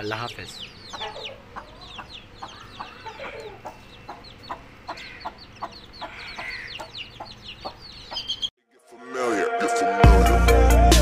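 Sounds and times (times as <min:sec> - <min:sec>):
chicks peeping: 0:00.0 - 0:08.5
hen clucking: 0:00.0 - 0:08.5.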